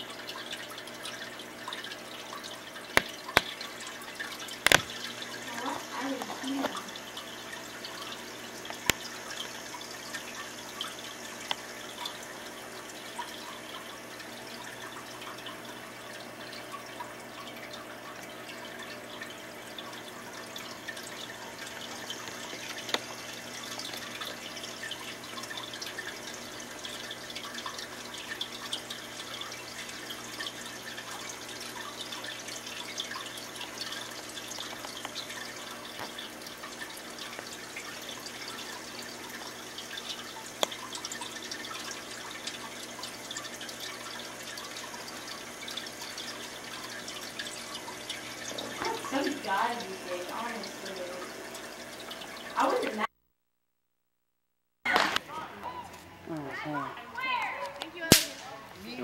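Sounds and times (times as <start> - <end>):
aquarium water trickling and bubbling: 0.0 - 53.1, 54.9 - 59.0
sharp click: 4.7 - 4.9, 58.1 - 58.4.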